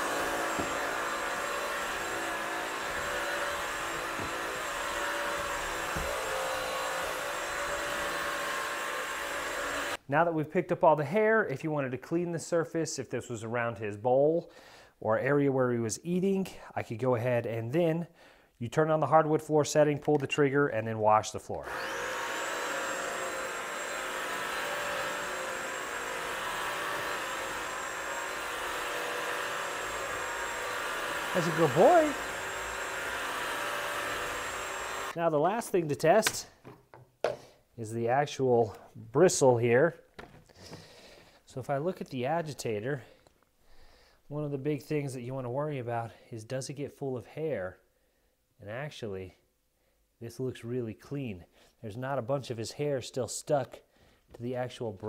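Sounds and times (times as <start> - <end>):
vacuum motor whine with hiss: 0.0 - 10.0, 21.6 - 35.2.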